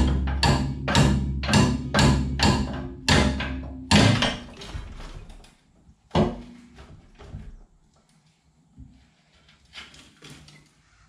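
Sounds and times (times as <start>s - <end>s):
heavy metal knocks and clanks: 0.0s - 5.5s, 6.1s - 7.4s.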